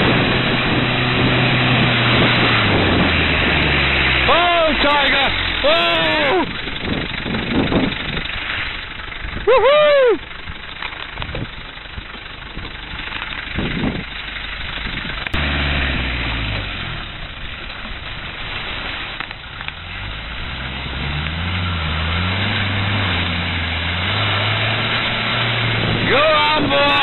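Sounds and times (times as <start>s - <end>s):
vehicle engine revving in mud: 0.0s - 27.0s.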